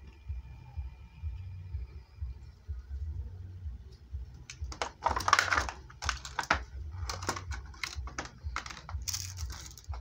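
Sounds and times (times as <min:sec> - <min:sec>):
low steady hum: 0:00.0 - 0:10.0
plastic bag crinkling: 0:04.7 - 0:10.0.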